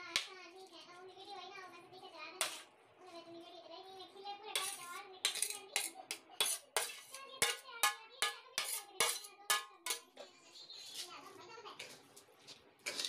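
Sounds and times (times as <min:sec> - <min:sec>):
metal spoon clinking in pan: 0:04.6 - 0:10.1.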